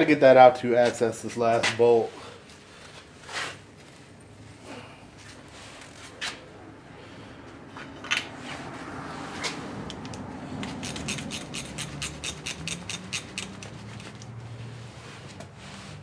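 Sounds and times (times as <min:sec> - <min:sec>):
socket ratchet clicking: 0:09.9 - 0:14.3.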